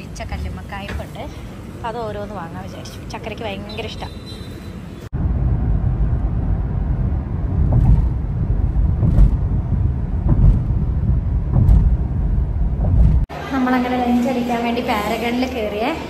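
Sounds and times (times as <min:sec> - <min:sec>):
car road rumble inside cabin: 0:05.2 - 0:13.3.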